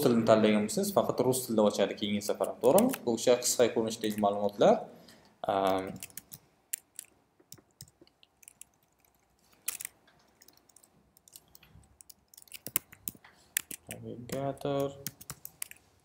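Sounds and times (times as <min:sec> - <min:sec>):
computer keyboard typing: 0:05.6 - 0:15.8.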